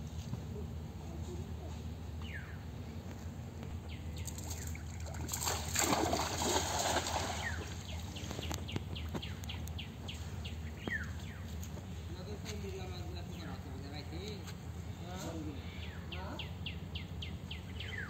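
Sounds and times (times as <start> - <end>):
birds chirping: 0.5 - 18.0
cast net swishing and splashing: 4.3 - 7.9.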